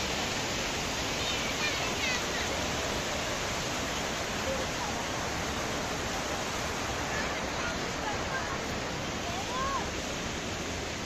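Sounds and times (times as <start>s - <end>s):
waterfall rushing: 0.0s - 11.0s.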